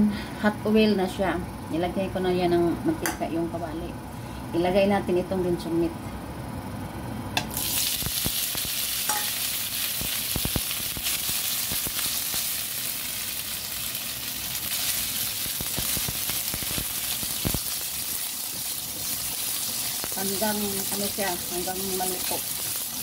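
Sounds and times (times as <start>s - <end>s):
meat sizzling in hot oil: 7.5s - 23.0s
spatula stirring in wok: 13.8s - 21.3s.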